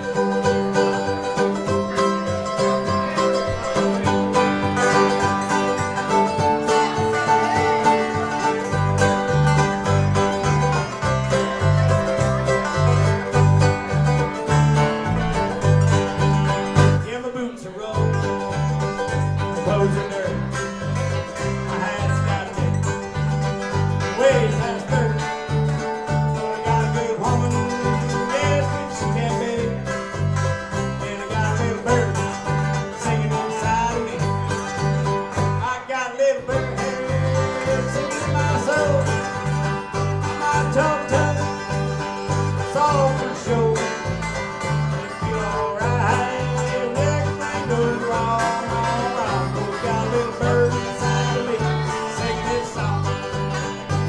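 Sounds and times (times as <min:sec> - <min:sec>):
electric bass line: 0:00.0 - 0:17.1, 0:18.0 - 0:35.7, 0:36.5 - 0:54.0
banjo picking: 0:00.0 - 0:54.0
guitars picking: 0:00.0 - 0:54.0
harmonica bending notes: 0:00.0 - 0:54.0.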